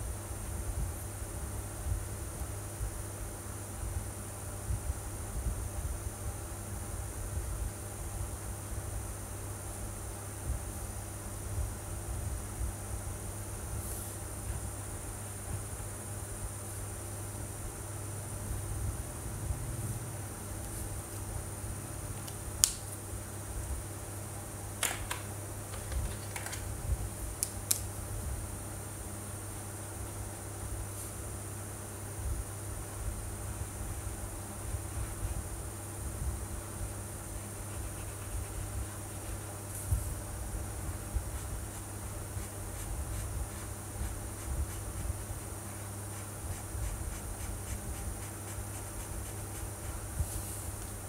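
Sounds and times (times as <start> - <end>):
marker scratching on paper: 37.3 - 39.6, 41.3 - 50.1.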